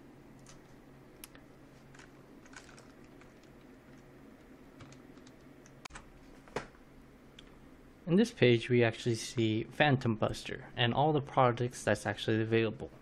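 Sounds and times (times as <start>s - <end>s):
low steady hum: 0.0s - 13.0s
computer keys clicking: 4.8s - 6.1s.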